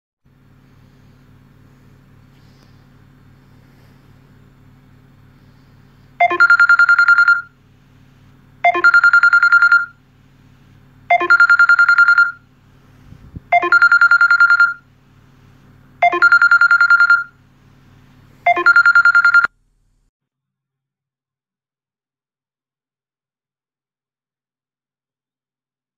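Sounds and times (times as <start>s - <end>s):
phone ringing warbling trill: 6.2s - 7.5s, 8.6s - 10.0s, 11.1s - 12.4s, 13.5s - 14.8s, 16.0s - 17.3s, 18.5s - 19.5s.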